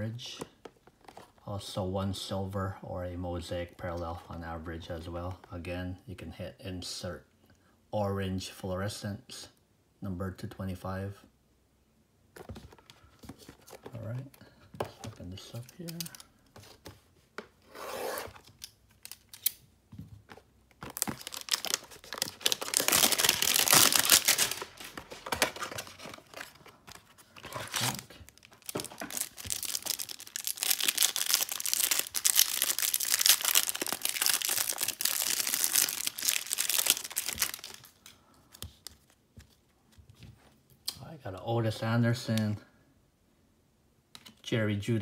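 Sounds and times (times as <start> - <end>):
foil wrapper tearing and crinkling: 20.9 - 25.7, 26.3 - 38.0.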